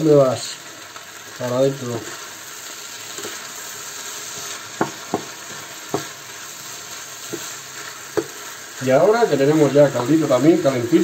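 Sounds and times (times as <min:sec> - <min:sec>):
rice sizzling in a frying pan: 0:00.0 - 0:11.0
spatula tapping a pan: 0:04.7 - 0:06.2, 0:07.2 - 0:08.4.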